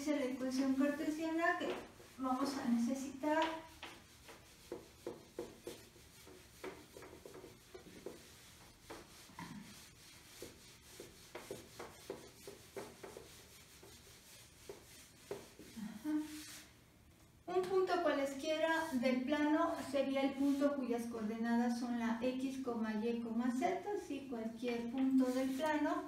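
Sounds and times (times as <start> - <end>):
eraser rubbing on whiteboard: 0.2 - 16.7, 18.4 - 20.9, 24.8 - 26.0.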